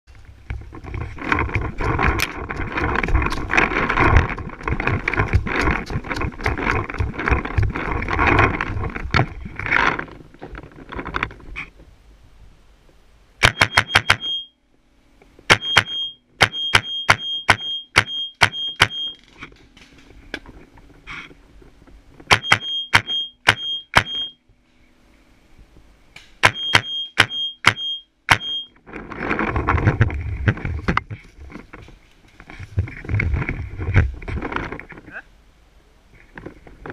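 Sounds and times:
rustling through dry leaves: 0:00.1 - 0:12.4
paintball marker firing sharp shots: 0:13.4 - 0:14.4, 0:22.3 - 0:24.3, 0:26.4 - 0:28.5.

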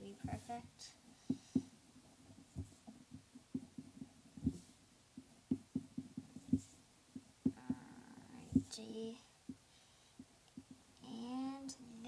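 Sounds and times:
pencil knocking on paper: 0:01.2 - 0:01.8, 0:02.4 - 0:07.9, 0:08.5 - 0:08.8.

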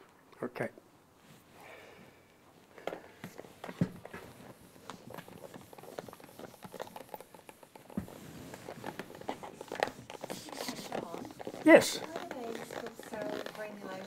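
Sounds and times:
marker and eraser on whiteboard: 0:03.2 - 0:14.0.

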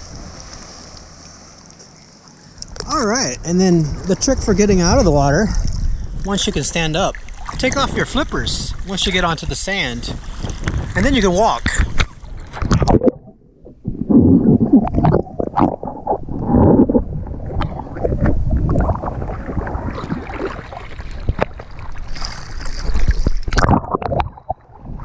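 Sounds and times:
seawater sloshing and splashing: 0:00.0 - 0:02.6, 0:03.9 - 0:13.1, 0:17.2 - 0:25.0.

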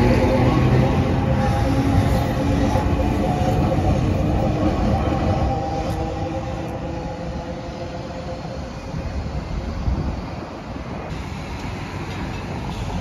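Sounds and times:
tram rolling on rails: 0:00.0 - 0:13.0.

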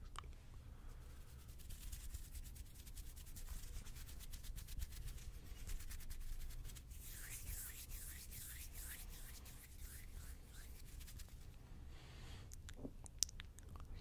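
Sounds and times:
hands rubbing: 0:01.0 - 0:11.6.

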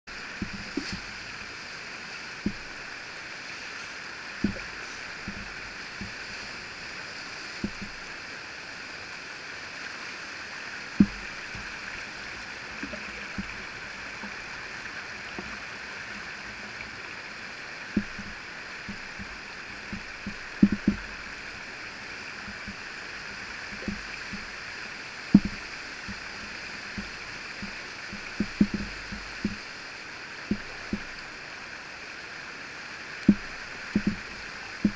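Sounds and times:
whitewater rushing: 0:00.1 - 0:34.9
dull thumps: 0:19.9 - 0:21.1, 0:25.3 - 0:26.2.

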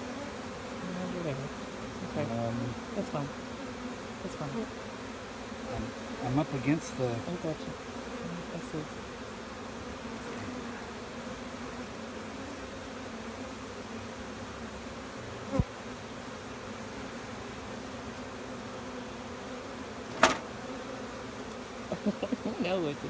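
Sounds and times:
bees buzzing: 0:00.0 - 0:23.0
sharp knock: 0:20.1 - 0:20.5
dull thump: 0:20.1 - 0:20.6.

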